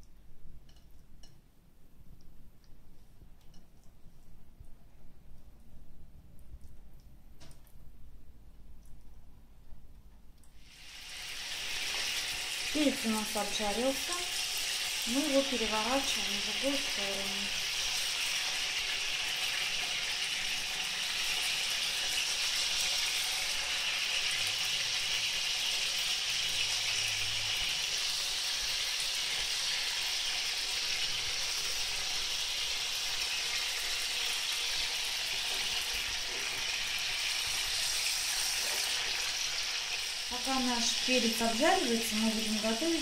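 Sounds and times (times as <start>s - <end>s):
peppers sizzling in oil: 10.5s - 43.0s.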